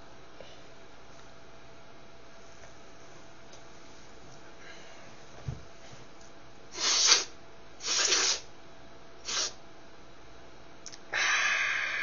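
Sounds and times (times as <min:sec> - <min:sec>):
man sniffing sharply: 0:06.7 - 0:08.5, 0:09.2 - 0:09.6.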